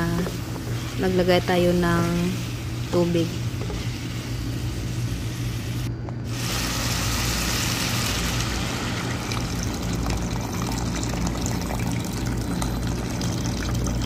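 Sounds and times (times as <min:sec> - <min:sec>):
water pouring into a pot: 0:06.5 - 0:14.0.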